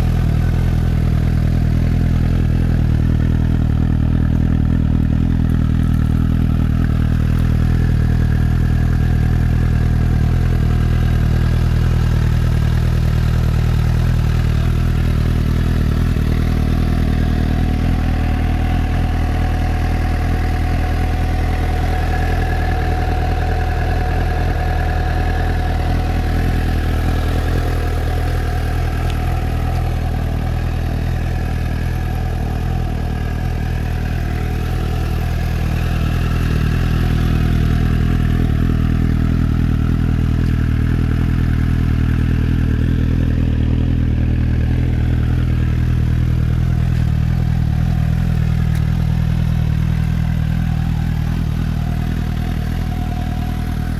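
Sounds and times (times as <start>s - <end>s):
motorcycle engine idling: 0.0s - 53.9s.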